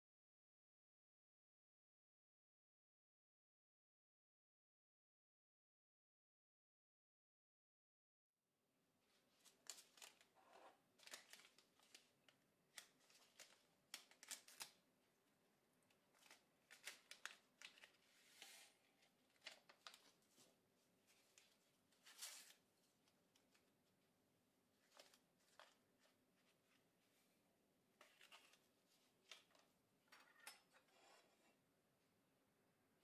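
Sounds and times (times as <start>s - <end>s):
paper sachets crinkling and rustling: 9.2s - 14.8s, 15.9s - 23.7s, 24.8s - 26.6s.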